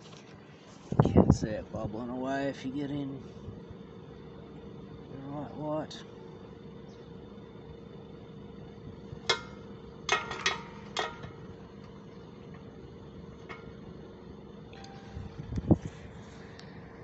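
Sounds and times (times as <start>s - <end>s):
air conditioner humming: 0.0s - 17.0s
sharp ringing clicks: 14.7s - 15.7s.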